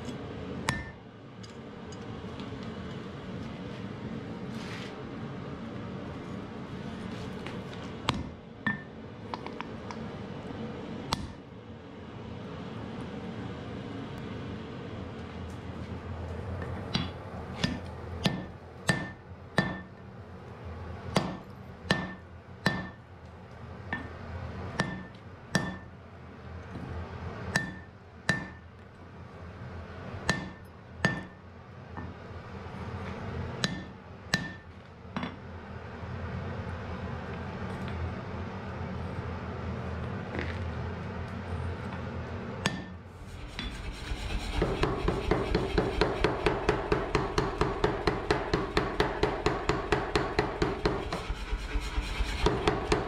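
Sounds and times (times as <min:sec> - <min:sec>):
steady low hum: 0:00.0 - 0:53.0
hammer striking iron on anvil: 0:00.7 - 0:01.0, 0:08.1 - 0:09.0, 0:11.1 - 0:11.4, 0:16.9 - 0:20.0, 0:21.1 - 0:23.0, 0:24.8 - 0:25.9, 0:27.5 - 0:28.7, 0:30.2 - 0:31.4, 0:33.6 - 0:35.3, 0:42.6 - 0:43.7, 0:44.6 - 0:53.0.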